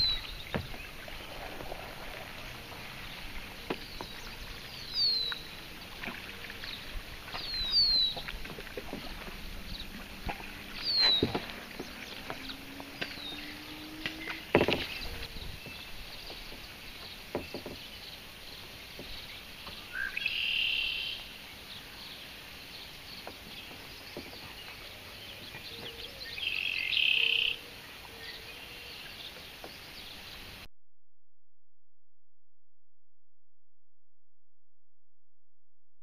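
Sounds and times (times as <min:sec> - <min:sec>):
buzzy trilled bird song: 0:00.0 - 0:01.4, 0:03.0 - 0:05.6, 0:06.7 - 0:08.2, 0:10.7 - 0:17.2, 0:19.2 - 0:21.3
faint bird chirps: 0:19.7 - 0:21.3.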